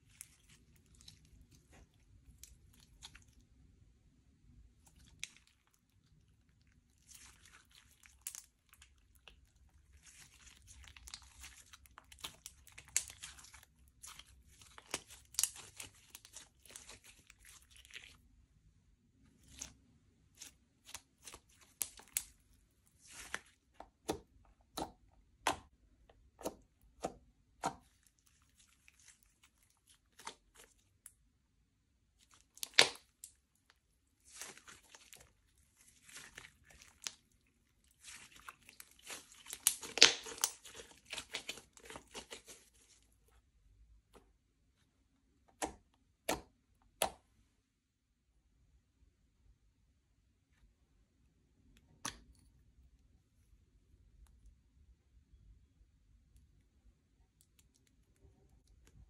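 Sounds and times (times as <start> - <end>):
slime crackling and tearing: 4.8 - 18.2, 19.4 - 23.8, 27.7 - 31.1, 32.2 - 43.1
slime popping: 32.4 - 33.3, 38.0 - 42.7.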